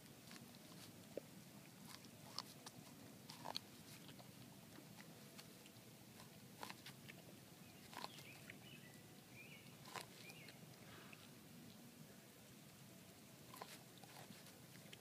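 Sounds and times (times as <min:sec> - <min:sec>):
dog tearing and crunching husks: 0:01.8 - 0:05.6, 0:06.2 - 0:08.4, 0:09.7 - 0:10.6, 0:13.4 - 0:15.0.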